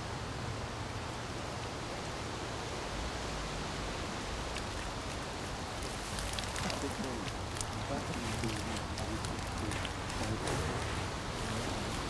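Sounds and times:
steady outdoor rushing noise: 0:00.0 - 0:12.0
faint clicks and rustles: 0:04.4 - 0:12.0.

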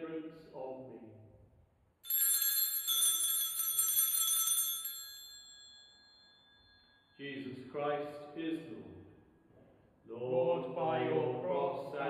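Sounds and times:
bells shaken and ringing: 0:02.0 - 0:07.2.

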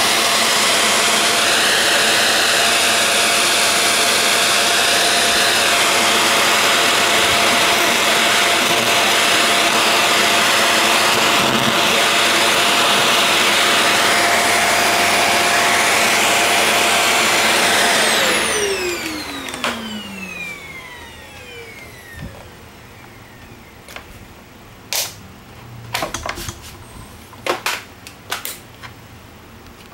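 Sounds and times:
electric motor whining: 0:00.1 - 0:23.7.

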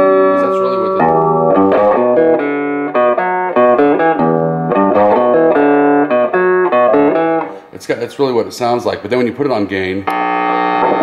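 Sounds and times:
clean electric guitar: 0:00.0 - 0:07.8, 0:10.0 - 0:11.0.

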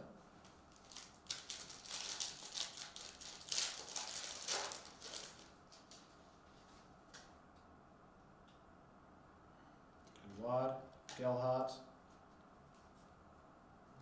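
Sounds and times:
foil wrapper tearing and crinkling: 0:00.4 - 0:06.0.

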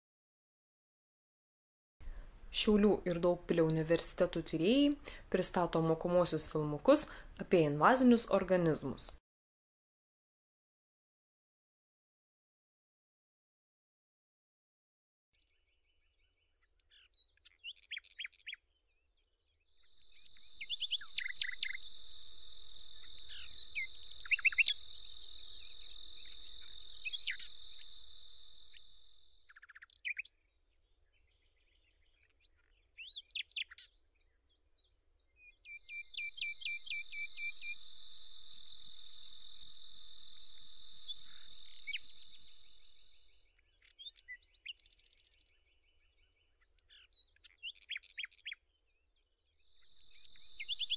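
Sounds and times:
songbirds chirping: 0:15.4 - 0:50.9
shrill insect trill: 0:19.8 - 0:29.4, 0:35.9 - 0:43.4, 0:49.7 - 0:50.9.

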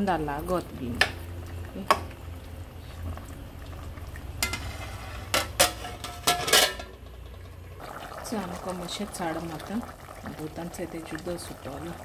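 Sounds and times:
low steady hum: 0:00.0 - 0:12.0
metal lid clanking against pot: 0:05.3 - 0:07.0.

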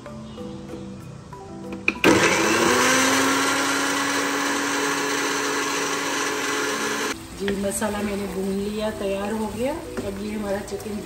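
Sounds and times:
mixer grinder motor humming: 0:01.7 - 0:07.2.

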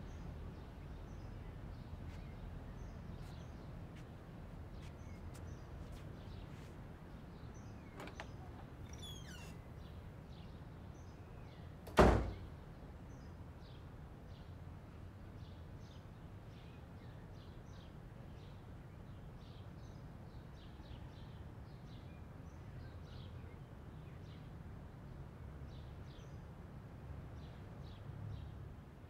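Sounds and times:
faint bird chirps: 0:07.6 - 0:10.5.

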